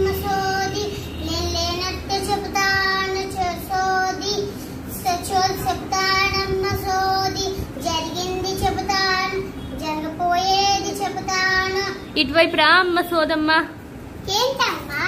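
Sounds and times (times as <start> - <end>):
girl singing a chant: 0.0 - 12.2.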